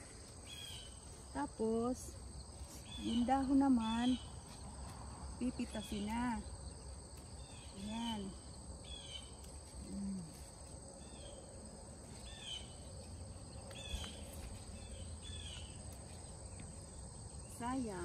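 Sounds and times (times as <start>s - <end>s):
insects trilling: 0.0s - 18.0s
bird chirping: 5.7s - 9.5s, 12.1s - 17.7s.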